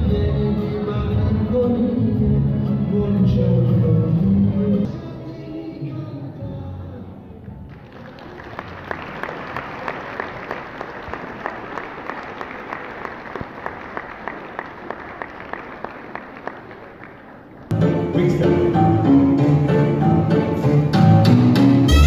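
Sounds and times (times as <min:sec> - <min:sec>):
audience applauding: 0:07.7 - 0:17.7.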